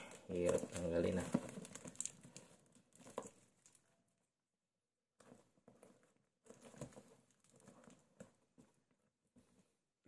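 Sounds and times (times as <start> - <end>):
plastic strap rustling: 0.0 - 3.9.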